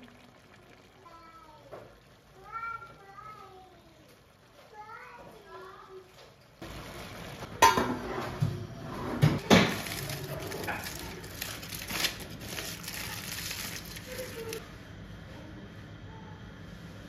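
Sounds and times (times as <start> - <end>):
aluminium foil crinkling: 9.4 - 14.6
sharp foil crackles: 9.4 - 14.6.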